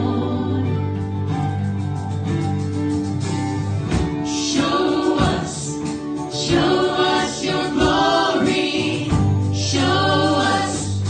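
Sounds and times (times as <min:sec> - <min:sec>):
voices singing together: 0:00.0 - 0:01.0, 0:04.2 - 0:11.0
guitar and bass: 0:00.0 - 0:11.0
strong drum beat: 0:03.8 - 0:07.0, 0:07.8 - 0:11.0.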